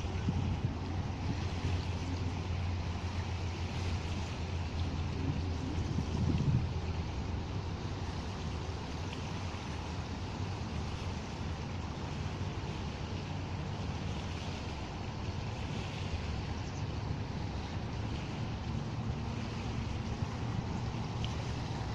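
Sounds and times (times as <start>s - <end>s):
wind gusting: 0.0s - 8.4s
waves lapping on stony shore: 0.0s - 21.9s.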